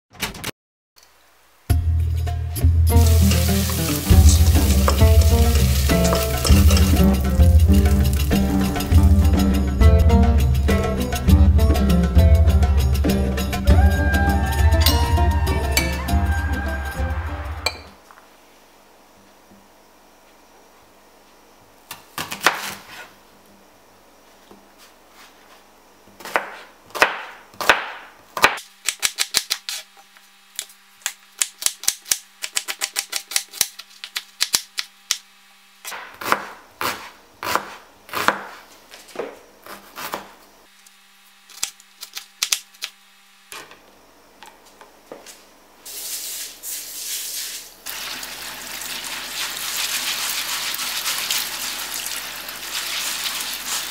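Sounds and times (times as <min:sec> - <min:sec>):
tap water running: 0:02.9 - 0:08.4, 0:47.4 - 0:53.9
knife chopping on plastic board: 0:26.2 - 0:29.6, 0:35.9 - 0:38.6
hand rubbing lentils in sieve: 0:45.9 - 0:47.8, 0:48.8 - 0:53.9.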